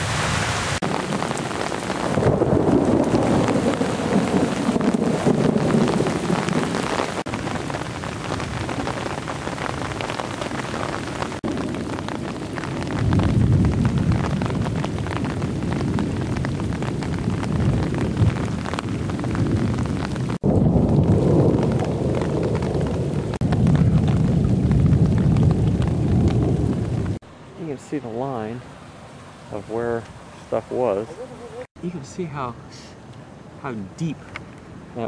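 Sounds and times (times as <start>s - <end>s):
heavy rain on flooded street: 0.0s - 30.2s
deep rumble: 10.8s - 27.2s.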